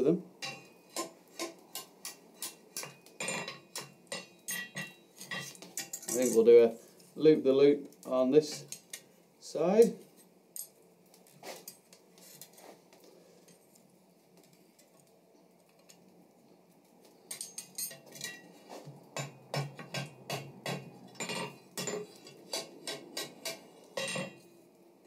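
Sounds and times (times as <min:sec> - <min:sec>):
metal clinking on anvil: 0:00.4 - 0:06.5, 0:17.3 - 0:18.5, 0:19.2 - 0:24.5.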